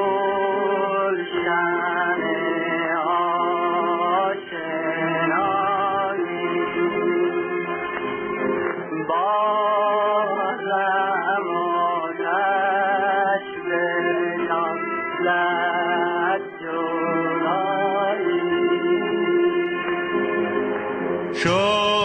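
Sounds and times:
men singing: 21.4s - 22.0s
steady accompaniment note: 21.4s - 22.0s.

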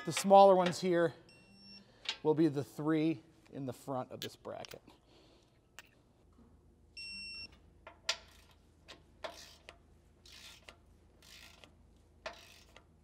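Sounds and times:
ratchet strokes: 8.2s - 13.0s.

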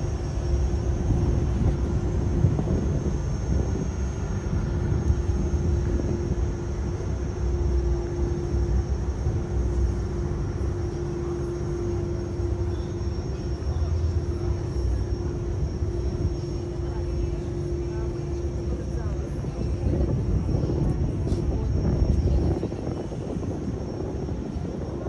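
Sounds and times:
low city rumble: 0.0s - 25.0s
mid-pitched hum: 0.0s - 25.0s.

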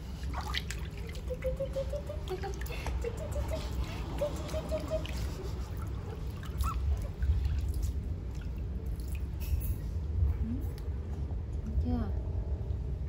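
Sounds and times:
water trickling and dripping: 0.0s - 10.0s
steady low rumble: 0.0s - 13.0s.

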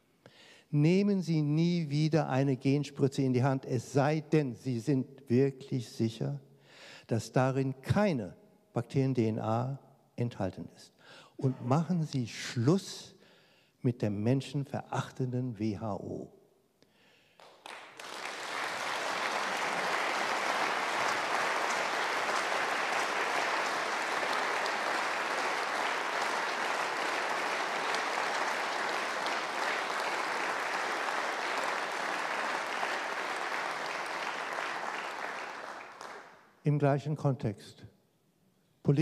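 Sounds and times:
audience applauding: 17.4s - 36.4s.

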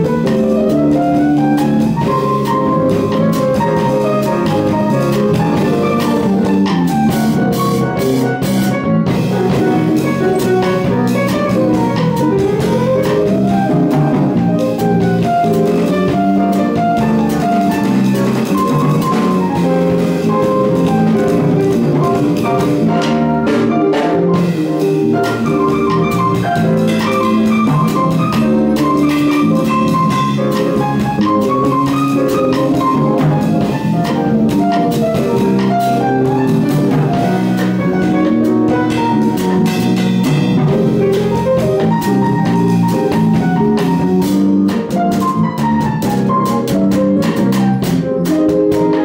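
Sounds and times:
live band playing: 0.0s - 49.0s.

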